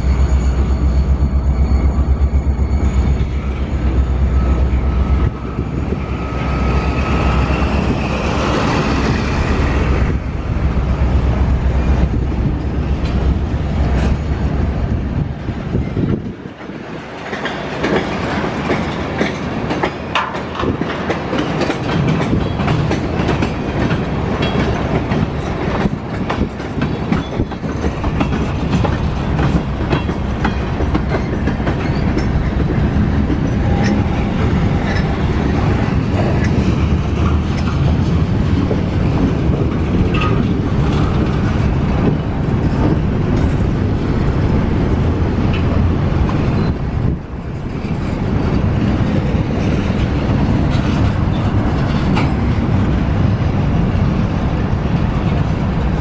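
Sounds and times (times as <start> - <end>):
train wheels rumbling on rail: 0.0 - 56.0
wheels clicking over rail joints: 15.7 - 53.5.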